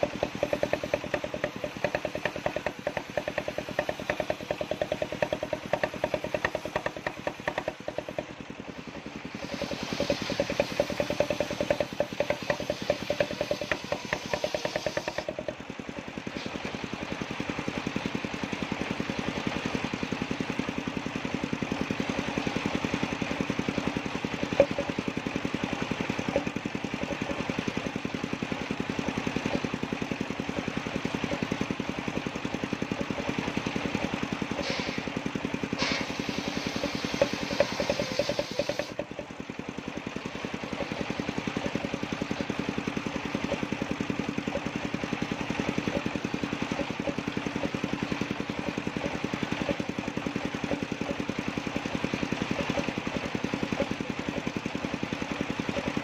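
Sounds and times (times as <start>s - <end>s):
sharp knocks: 0.0s - 8.4s, 9.4s - 16.1s, 24.3s - 25.1s, 35.8s - 39.3s
sawmill blade cutting log: 0.0s - 56.0s.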